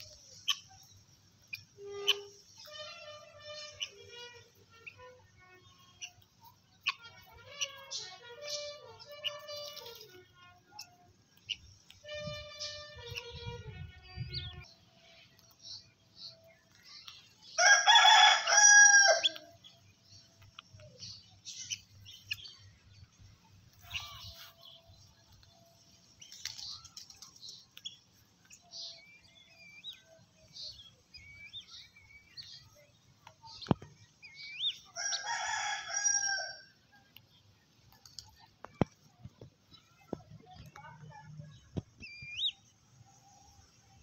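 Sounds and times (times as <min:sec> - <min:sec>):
birds chirping: 0:00.0 - 0:44.0
rooster crowing: 0:17.6 - 0:19.4, 0:35.0 - 0:36.7.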